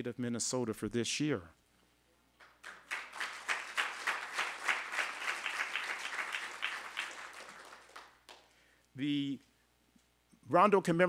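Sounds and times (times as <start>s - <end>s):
audience applauding: 2.4s - 8.5s.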